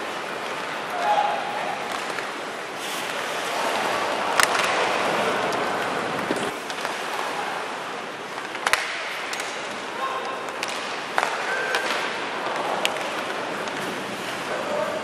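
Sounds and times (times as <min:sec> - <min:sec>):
arena crowd noise: 0:00.0 - 0:15.0
skates on ice: 0:00.0 - 0:15.0
sticks clacking on puck: 0:01.8 - 0:02.4, 0:04.3 - 0:04.9, 0:05.5 - 0:07.0, 0:08.3 - 0:14.6.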